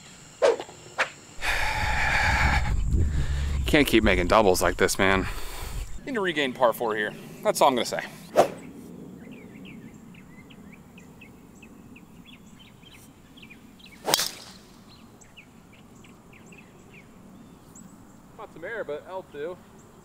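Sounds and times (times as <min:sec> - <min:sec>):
small birds chirping: 0:00.2 - 0:20.0
golf club striking ball: 0:14.1 - 0:14.6.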